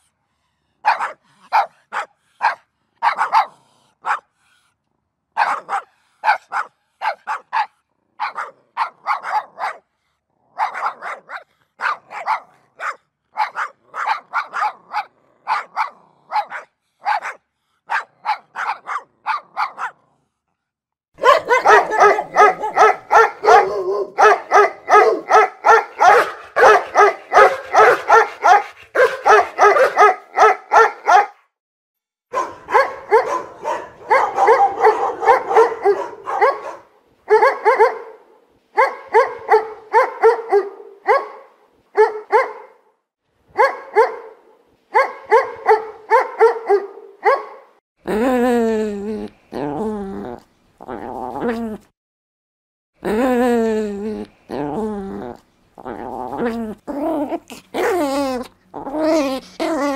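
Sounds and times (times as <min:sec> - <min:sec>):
dogs barking: 0:00.8 - 0:04.3, 0:05.4 - 0:09.9, 0:10.6 - 0:20.0, 0:21.2 - 0:31.4, 0:32.3 - 0:42.8, 0:43.6 - 0:47.8.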